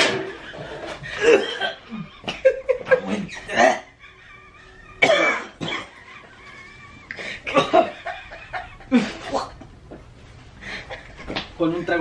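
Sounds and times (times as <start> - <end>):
person laughing: 0.5 - 9.6
person coughing: 1.2 - 2.0, 5.0 - 6.0.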